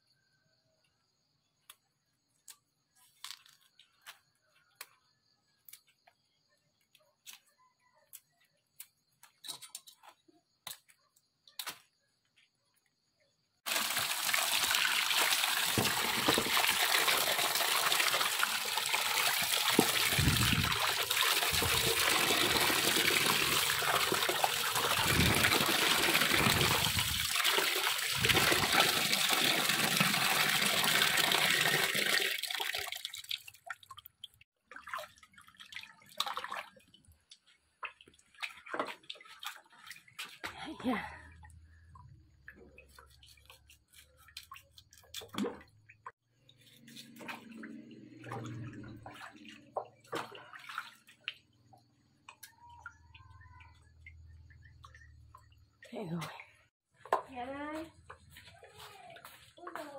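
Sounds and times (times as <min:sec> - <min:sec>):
water pouring into plastic basin: 0:13.7 - 0:37.2, 0:46.6 - 0:51.6.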